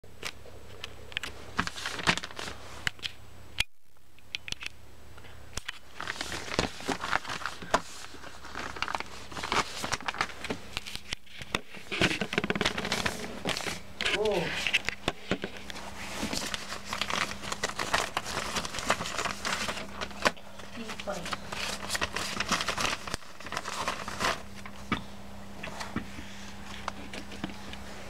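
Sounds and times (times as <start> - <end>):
plastic bag crinkling: 5.6 - 24.8.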